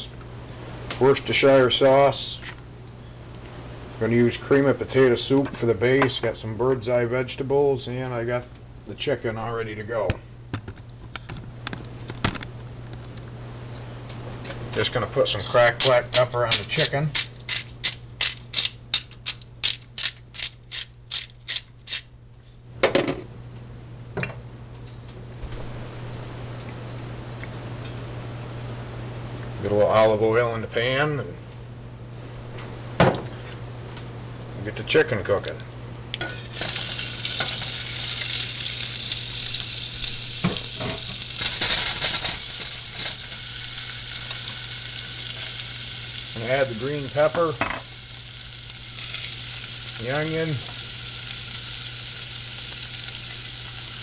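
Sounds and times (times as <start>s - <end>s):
pepper grinder ratcheting clicks: 15.8s - 22.0s
chicken sizzling in oil: 36.3s - 54.0s.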